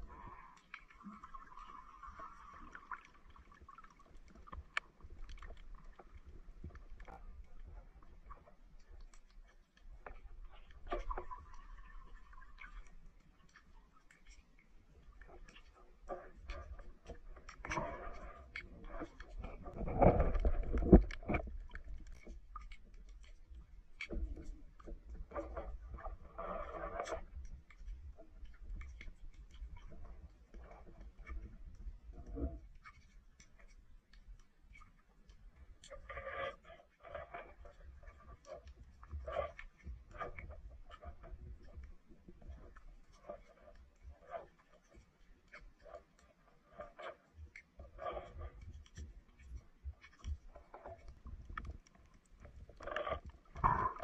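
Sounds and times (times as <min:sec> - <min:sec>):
faint underwater clicks and crackles: 0:00.0 - 0:54.0
low water rumble: 0:00.0 - 0:54.0
water swish: 0:00.0 - 0:54.0
low underwater rumble: 0:15.1 - 0:32.8, 0:47.8 - 0:54.0.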